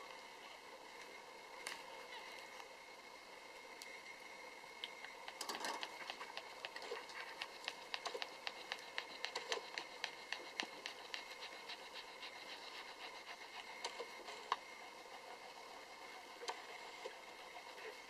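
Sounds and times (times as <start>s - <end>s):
dog licking wetly: 4.8s - 13.7s.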